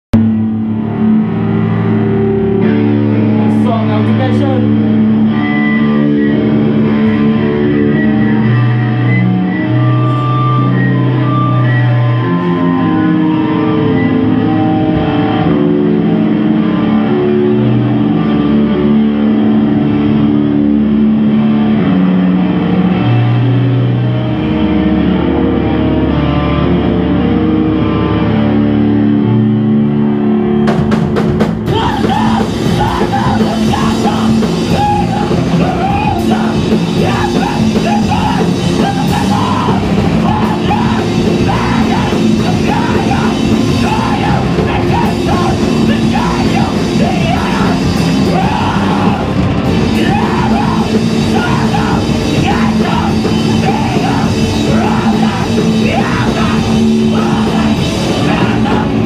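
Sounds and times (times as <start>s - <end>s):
distorted electric guitar: 0.1s - 59.0s
heavy band playing loud: 0.1s - 59.0s
drums crashing: 30.6s - 59.0s
person yelling vocals: 31.7s - 59.0s.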